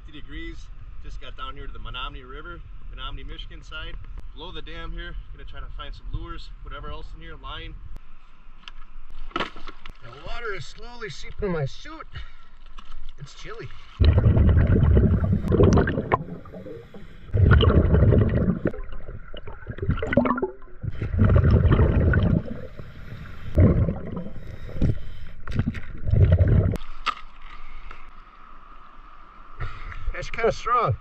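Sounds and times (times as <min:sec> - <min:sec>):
regulator bubbles gurgling: 0:14.0 - 0:26.8
diver breathing through regulator: 0:14.9 - 0:18.7, 0:20.8 - 0:25.6.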